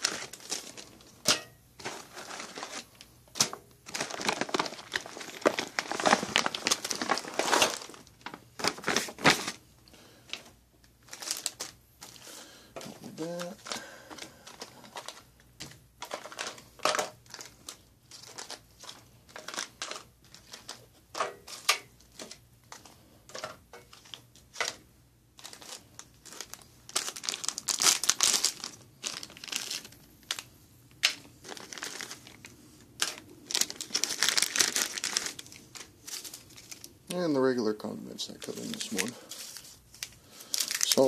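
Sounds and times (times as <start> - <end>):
plastic pouches crinkling: 0.0 - 41.0.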